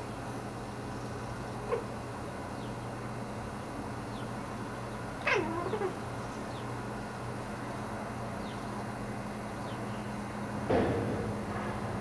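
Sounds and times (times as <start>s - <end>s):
cat meowing: 5.2s - 6.0s.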